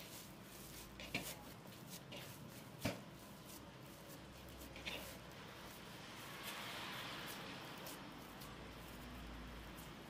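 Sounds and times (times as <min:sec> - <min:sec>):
dough squishing by hand: 0:00.0 - 0:10.0
dough thumping against bowl: 0:02.1 - 0:03.2.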